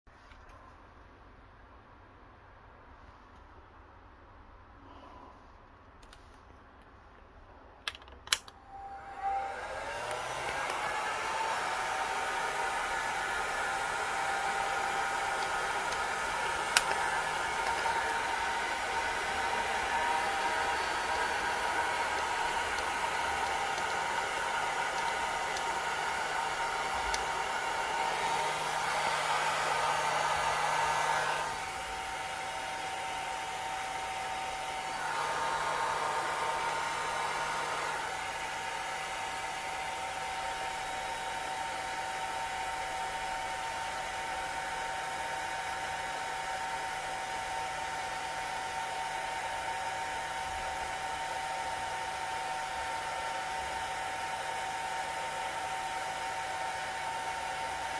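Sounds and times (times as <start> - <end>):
heat gun blower hissing: 8.7 - 42.8.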